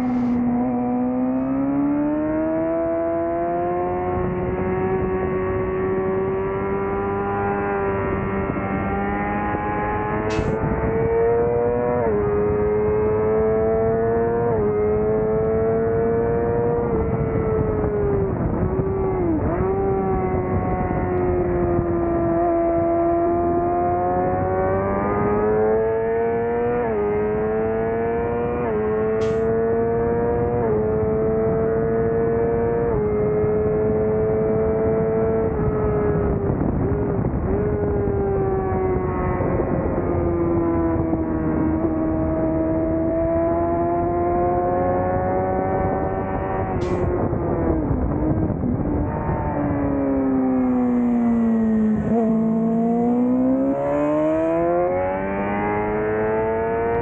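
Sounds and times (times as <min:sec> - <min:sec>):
motorcycle engine revving: 0:00.0 - 0:57.0
wind rush: 0:07.8 - 0:13.2, 0:13.8 - 0:23.2, 0:34.8 - 0:52.8.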